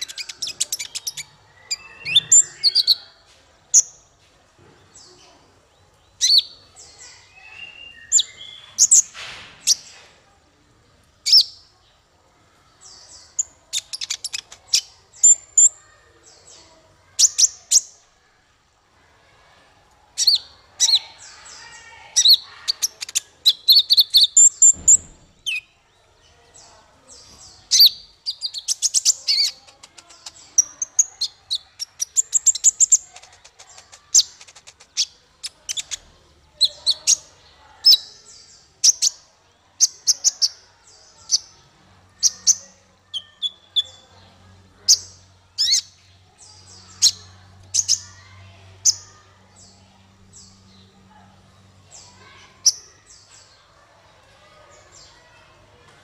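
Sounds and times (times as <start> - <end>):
bird chirping and trilling: 0.0 - 3.1, 6.1 - 9.9, 11.2 - 11.6, 12.8 - 16.6, 20.2 - 25.8, 26.6 - 39.2, 42.2 - 44.1
low thump: 24.7 - 25.4.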